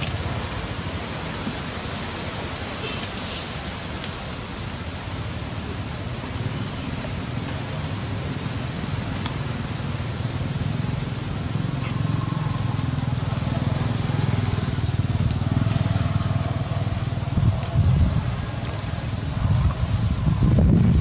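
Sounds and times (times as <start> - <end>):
steady outdoor hiss: 0.0 - 21.0
low motor rumble: 10.3 - 21.0.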